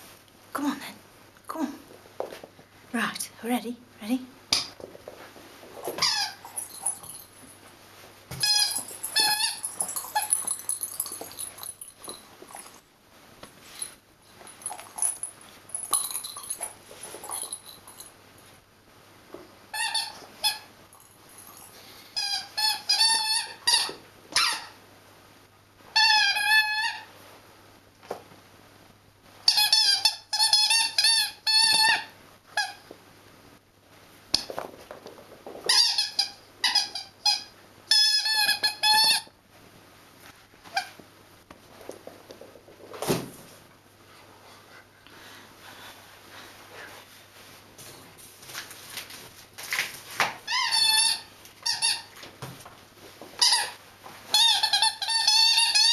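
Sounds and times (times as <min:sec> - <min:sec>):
squeaky toy squeaking: 0:06.0 - 0:07.0, 0:08.4 - 0:10.5, 0:19.8 - 0:20.7, 0:22.2 - 0:24.8, 0:26.0 - 0:27.1, 0:29.5 - 0:32.8, 0:35.7 - 0:39.3, 0:50.5 - 0:52.1, 0:53.4 - 0:55.9.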